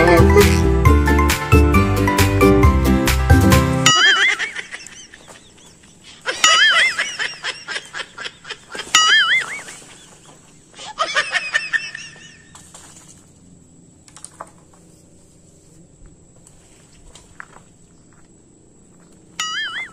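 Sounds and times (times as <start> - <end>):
background music: 0.0 - 4.1.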